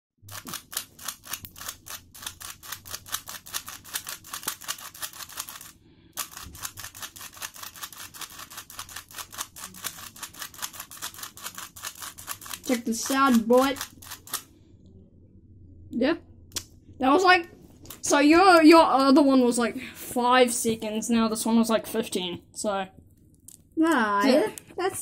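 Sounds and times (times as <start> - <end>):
puzzle cube clicking: 0.3 - 14.5.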